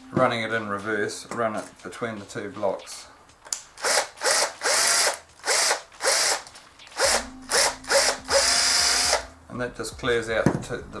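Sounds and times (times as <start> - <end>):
cordless drill spinning: 3.8 - 9.3.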